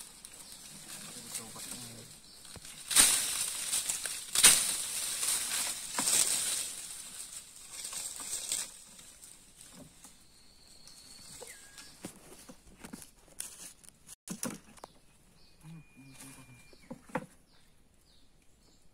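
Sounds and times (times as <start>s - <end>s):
dry leaves rustling on branches: 0.0s - 13.8s.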